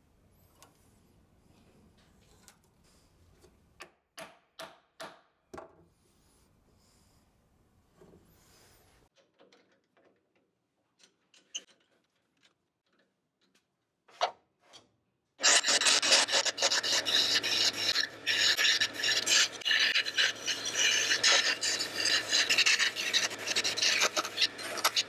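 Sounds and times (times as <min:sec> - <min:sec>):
lathe tool scraping wood: 0:15.4 - 0:25.0.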